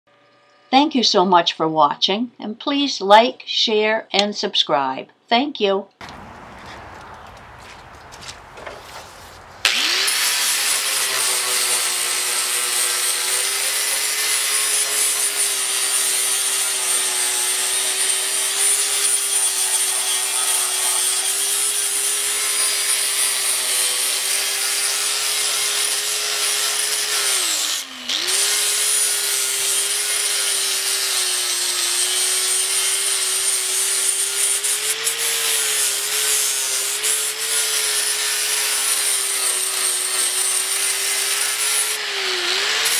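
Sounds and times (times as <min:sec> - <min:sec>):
angle grinder grinding metal: 0:09.6 - 0:42.9.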